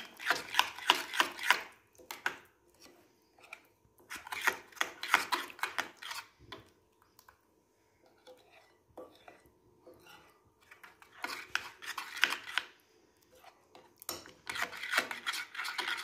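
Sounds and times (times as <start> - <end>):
spoon scraping glass bowl: 8.2 - 12.6, 13.4 - 16.0.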